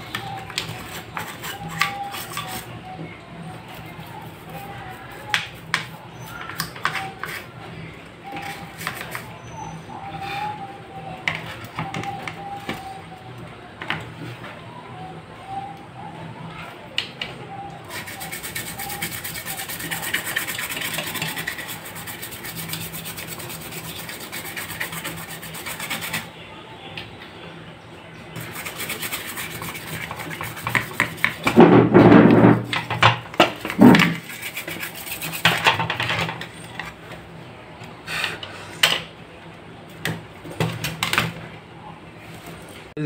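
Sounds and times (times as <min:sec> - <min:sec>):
stiff brush scrubbing circuit board: 0:17.9 - 0:26.3, 0:28.4 - 0:31.6, 0:33.6 - 0:35.6.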